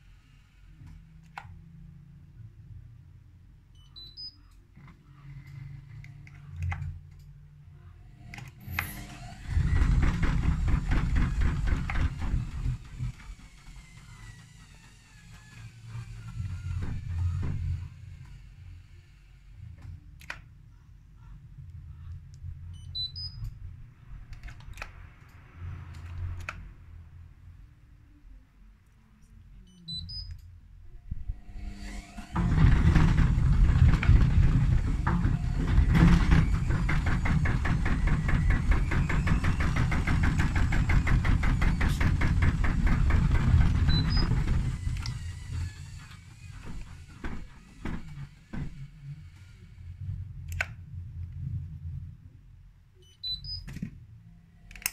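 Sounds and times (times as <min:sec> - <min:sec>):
washing machine motor rumble: 0:07.9 - 0:18.2, 0:31.3 - 0:52.5
washing machine drum knocking: 0:32.4 - 0:45.1.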